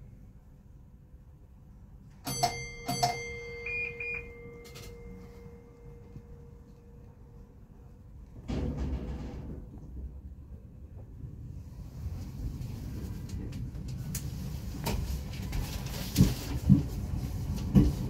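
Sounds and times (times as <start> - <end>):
short high beeps: 2.3 - 5.5
low hum: 3.2 - 14.7.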